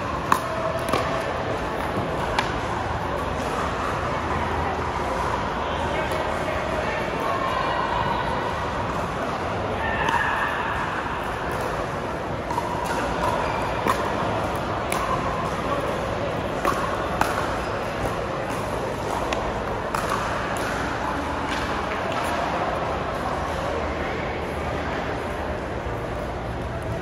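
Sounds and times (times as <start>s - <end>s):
paddles striking pickleball: 0.2s - 2.6s, 16.5s - 22.5s.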